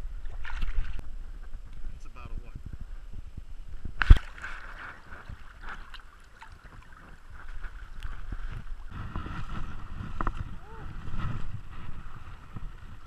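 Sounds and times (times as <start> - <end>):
creek water splashing: 0.1 - 1.6, 3.9 - 11.5.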